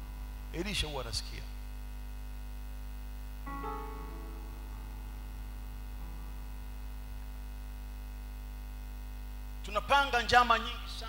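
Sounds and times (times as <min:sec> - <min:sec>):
low electrical hum: 0:00.0 - 0:11.0
soft keyboard chords: 0:03.4 - 0:07.4.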